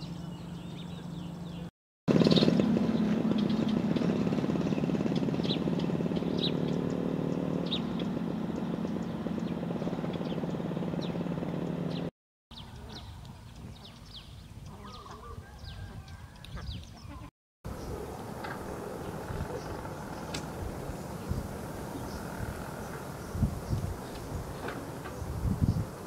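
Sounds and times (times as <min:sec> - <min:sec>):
small birds chirping: 0:00.0 - 0:26.0
small engine puttering: 0:02.1 - 0:12.1, 0:17.7 - 0:26.0.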